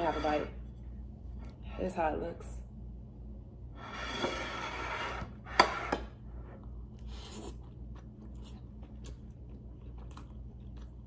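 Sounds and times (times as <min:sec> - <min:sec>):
soft chewing: 0:06.4 - 0:11.0.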